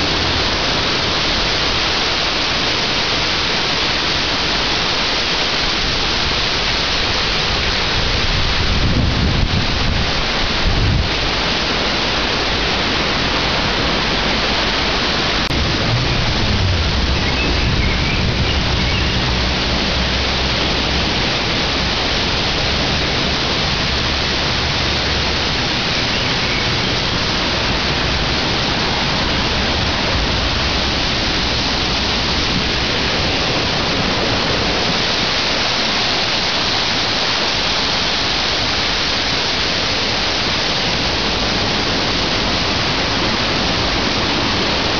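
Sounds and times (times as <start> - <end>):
floodwater rushing and churning: 0.0 - 44.9
low rumbles on microphone: 8.0 - 35.3.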